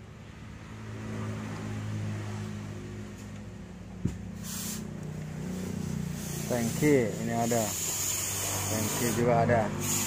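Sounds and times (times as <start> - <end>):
brief hiss: 4.4 - 4.9.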